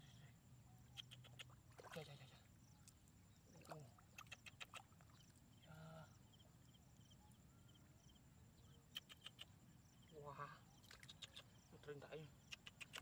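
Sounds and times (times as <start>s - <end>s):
small high chirps: 0.7s - 11.8s
sharp clicks: 12.5s - 13.0s.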